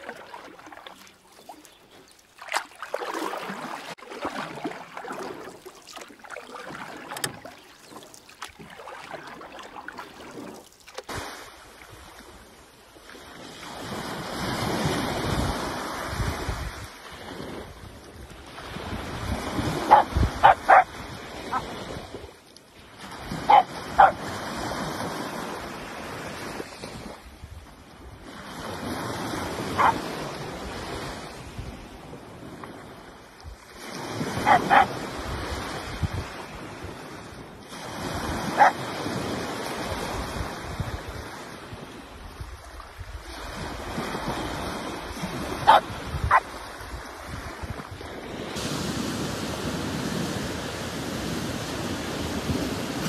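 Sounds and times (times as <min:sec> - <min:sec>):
dog barking: 0:19.9 - 0:20.9, 0:23.5 - 0:24.2, 0:29.8 - 0:30.0, 0:34.4 - 0:35.0, 0:38.6 - 0:38.8, 0:45.6 - 0:46.5
surf breaking on sand: 0:43.3 - 0:53.0.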